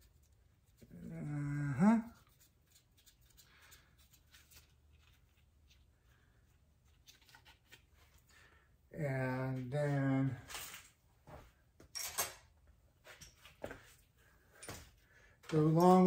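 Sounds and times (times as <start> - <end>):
man humming: 0.8 - 2.2.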